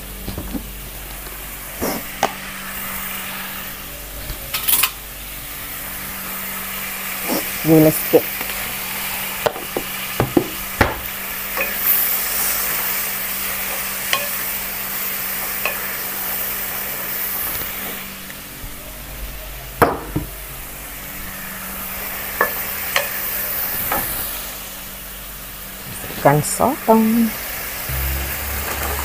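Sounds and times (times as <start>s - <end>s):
sauce sizzling in a wok: 0.1s - 18.5s, 20.7s - 29.0s
steady low hum: 27.9s - 29.0s.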